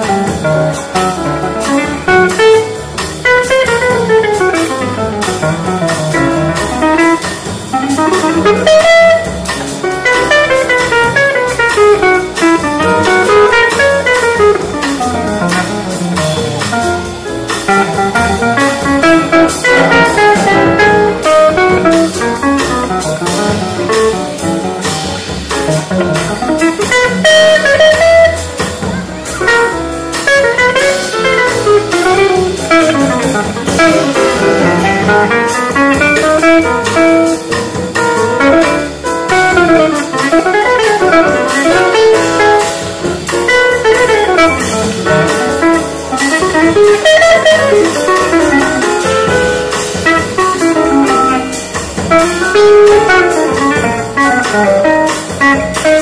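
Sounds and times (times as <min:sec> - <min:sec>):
double bass: 0:00.0 - 0:56.0
jazz guitar solo: 0:00.0 - 0:56.0
piano accompaniment: 0:00.0 - 0:56.0.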